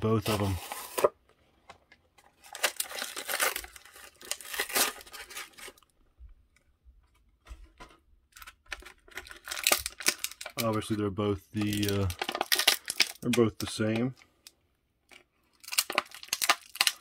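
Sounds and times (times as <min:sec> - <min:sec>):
packaging tearing and crinkling: 0:00.0 - 0:01.1, 0:02.4 - 0:05.9, 0:08.4 - 0:11.0, 0:11.6 - 0:14.1, 0:15.1 - 0:17.0.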